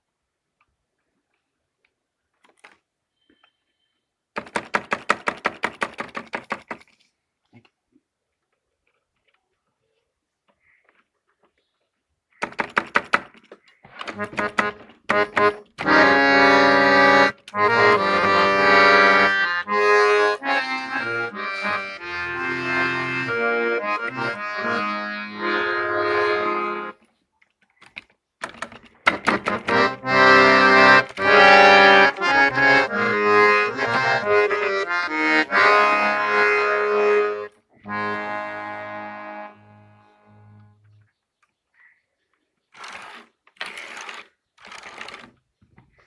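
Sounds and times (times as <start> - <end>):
harmonium playing: 14.0 - 27.0, 29.1 - 41.0.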